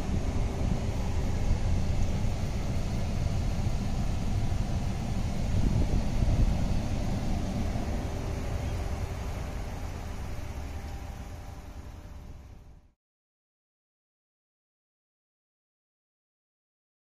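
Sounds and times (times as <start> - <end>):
air conditioning blower hiss: 0.0 - 12.9
truck engine idling: 0.0 - 12.9.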